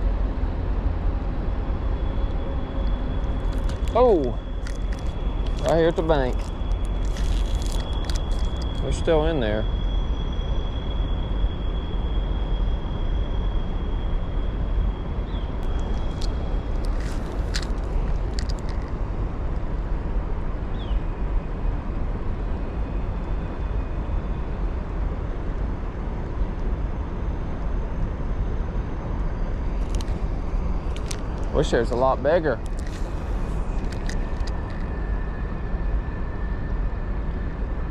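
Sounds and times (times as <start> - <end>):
faint high steady tone: 1.8 - 19.3.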